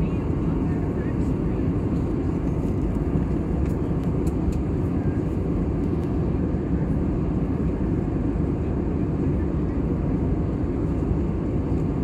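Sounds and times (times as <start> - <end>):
aircraft cabin engine roar: 0.0 - 12.0.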